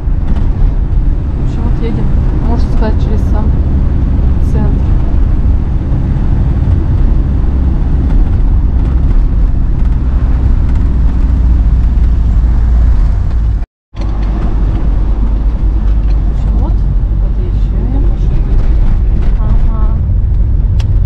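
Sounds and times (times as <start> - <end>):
car engine and road noise: 0.0 - 21.0.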